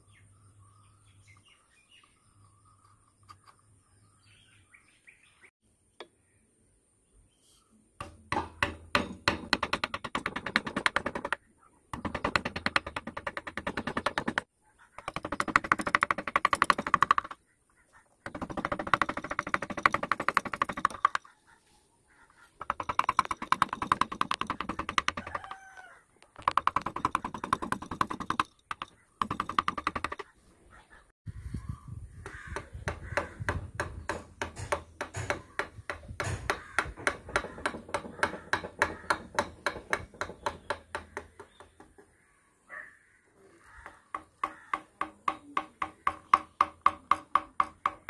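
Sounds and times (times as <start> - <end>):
light tapping on carving gouge: 22.6 - 25.7, 26.4 - 30.3, 32.2 - 42.0.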